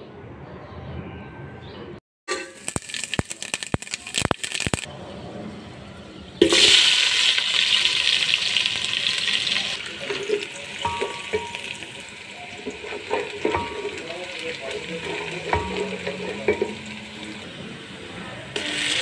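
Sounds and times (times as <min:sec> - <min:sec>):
onions sizzling in oil: 0:02.3 - 0:04.9, 0:06.4 - 0:19.0
spices crackling in hot oil: 0:02.3 - 0:04.9, 0:06.4 - 0:17.6, 0:18.5 - 0:19.0.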